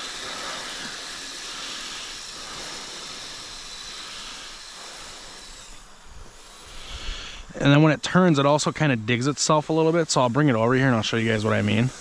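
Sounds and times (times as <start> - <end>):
electric motor and tracks whirring: 0.0 - 12.0.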